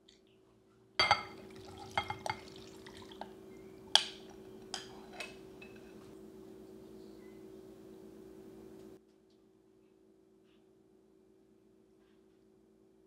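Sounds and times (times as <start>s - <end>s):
glass bowls clinking: 1.0s - 3.3s.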